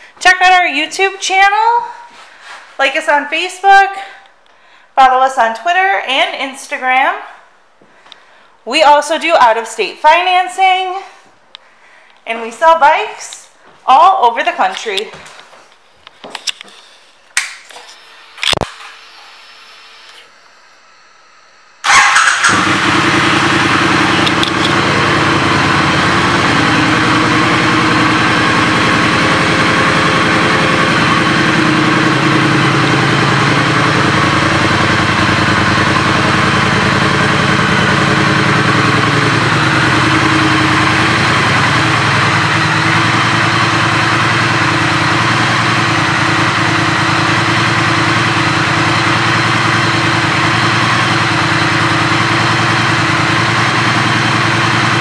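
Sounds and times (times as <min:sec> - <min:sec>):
motorcycle engine idling: 0:21.8 - 0:55.0.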